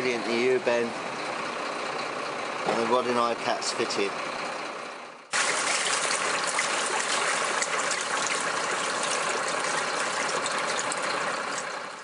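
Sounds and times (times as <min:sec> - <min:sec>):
water splashing down a drain pipe: 0:05.3 - 0:12.0.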